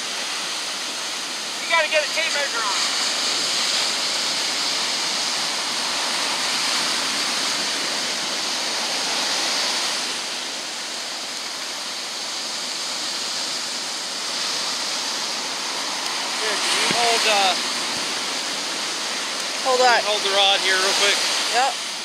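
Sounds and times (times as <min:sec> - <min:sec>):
surf breaking on beach: 0:00.0 - 0:22.0.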